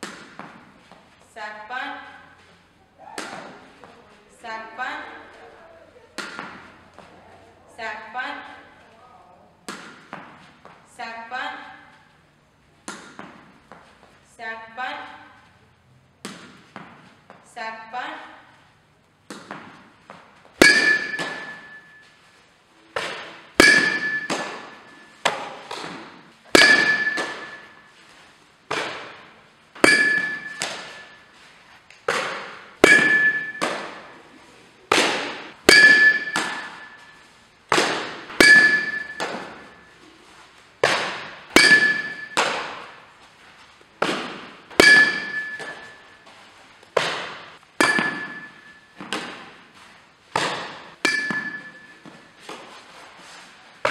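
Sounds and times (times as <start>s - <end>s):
softballs being struck: 0.0s - 1.0s, 3.1s - 4.0s, 6.1s - 7.1s, 9.6s - 10.8s, 12.8s - 13.9s, 19.2s - 22.0s, 22.9s - 27.9s, 28.6s - 31.2s, 32.0s - 34.2s, 34.9s - 39.9s, 40.8s - 43.0s, 43.8s - 46.2s, 46.8s - 49.6s, 50.3s - 52.7s.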